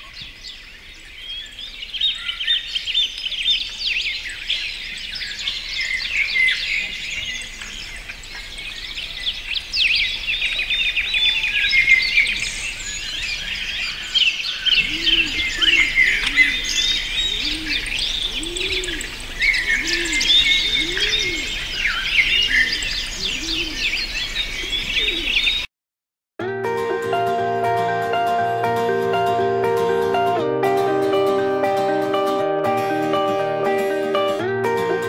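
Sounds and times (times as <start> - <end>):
birds chirping and trilling: 0.0 - 25.7
low repeated bird call: 0.0 - 25.7.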